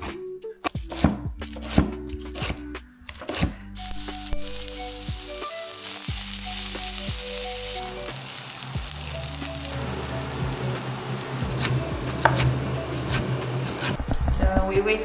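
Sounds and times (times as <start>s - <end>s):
background music: 0.0s - 15.0s
spinach sizzling in a pan: 3.8s - 13.9s.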